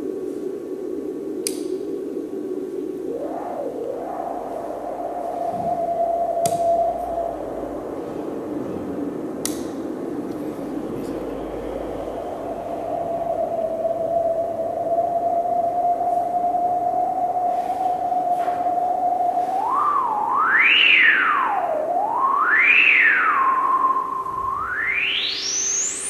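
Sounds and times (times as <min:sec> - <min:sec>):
synthesizer tone gliding in pitch: 0:06.4 - 0:16.6, 0:19.4 - 0:26.0.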